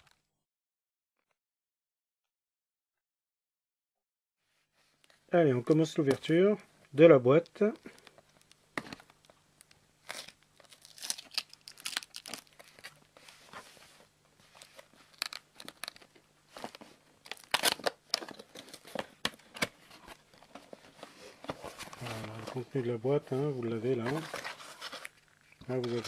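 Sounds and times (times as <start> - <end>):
cardboard box being opened: 23.9 - 25.1.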